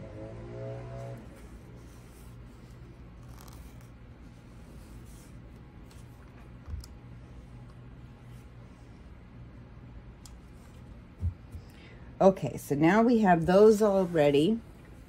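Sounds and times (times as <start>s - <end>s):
distant lawn mower drone: 0.0s - 1.6s.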